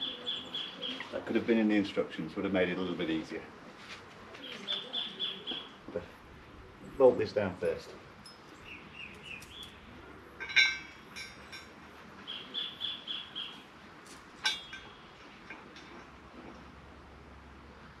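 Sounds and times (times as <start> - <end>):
sharp metallic clinks: 8.2 - 8.6.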